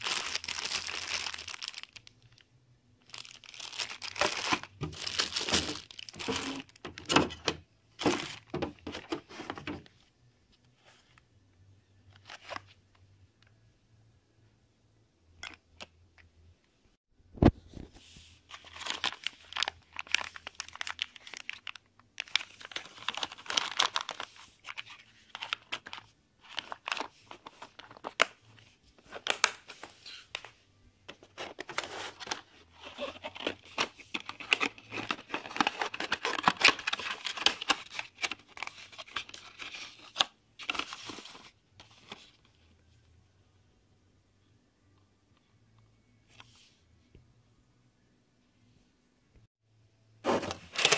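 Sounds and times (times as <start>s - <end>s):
packaging crinkling and rustling: 0.0s - 2.4s, 3.0s - 9.9s, 18.5s - 30.5s, 31.1s - 42.4s, 50.3s - 50.9s.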